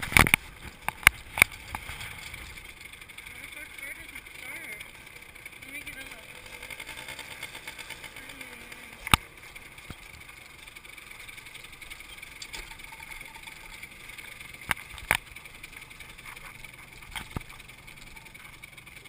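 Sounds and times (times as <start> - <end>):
motorbike riding over dirt: 0.0 - 19.0.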